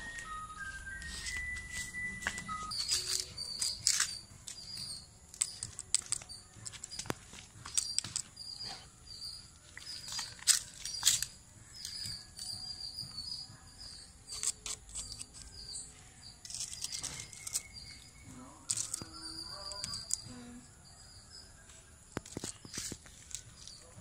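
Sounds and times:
small birds chirping: 0.2 - 24.0
clicks and scratching: 2.7 - 8.4, 9.9 - 12.5, 14.3 - 15.7, 16.4 - 20.3, 22.2 - 23.8.

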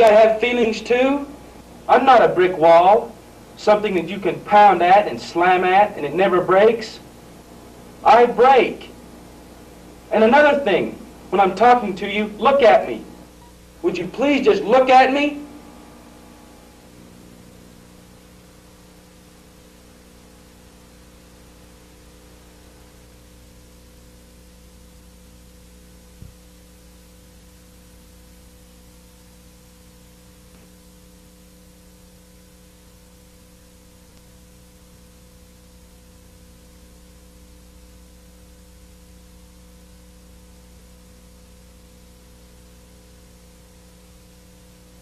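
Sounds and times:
mains hum and hiss: 0.0 - 45.0
click: 34.1 - 34.3.

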